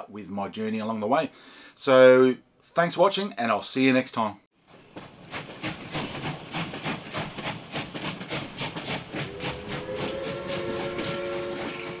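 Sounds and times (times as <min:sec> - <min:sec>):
steam locomotive chuffing: 0:04.6 - 0:12.0.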